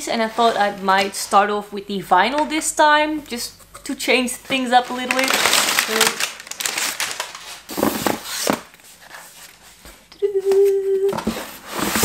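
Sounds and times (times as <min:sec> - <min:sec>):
cardboard rustling and scraping: 0:04.5 - 0:10.0, 0:11.1 - 0:12.0
person humming: 0:10.1 - 0:11.4.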